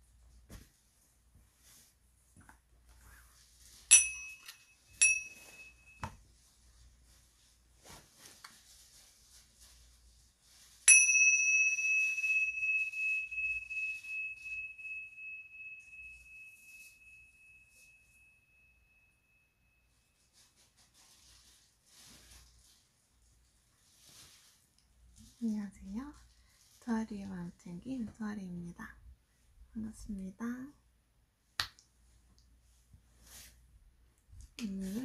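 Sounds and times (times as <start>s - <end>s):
small cymbals ringing: 3.9s - 6.0s, 10.9s - 20.0s.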